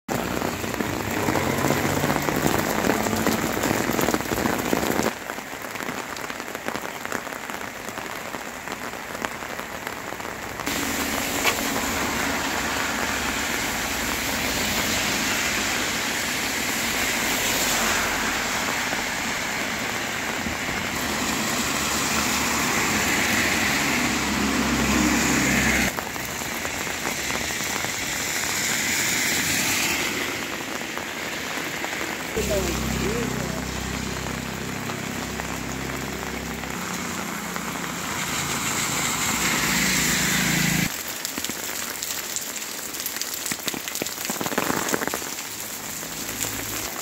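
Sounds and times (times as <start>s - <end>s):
steady rain hiss: 0.1s - 47.0s.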